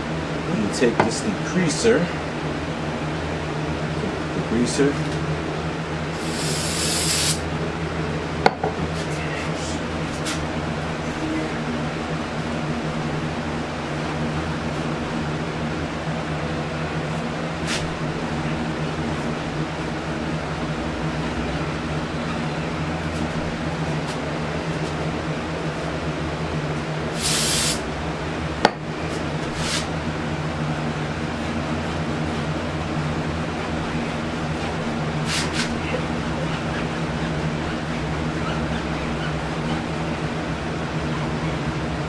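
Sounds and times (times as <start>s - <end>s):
electric fan humming: 0.0s - 42.0s
spray hiss: 6.2s - 7.4s, 27.2s - 27.8s.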